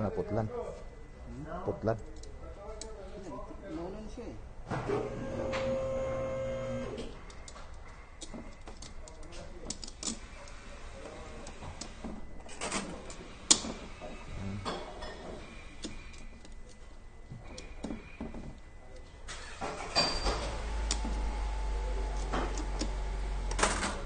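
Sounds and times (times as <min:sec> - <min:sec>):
low steady machine hum: 0:00.0 - 0:07.2.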